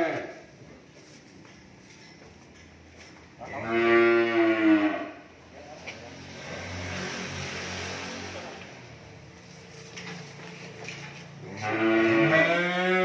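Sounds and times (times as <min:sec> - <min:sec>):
cow mooing: 0:03.5 - 0:05.2, 0:11.4 - 0:13.0.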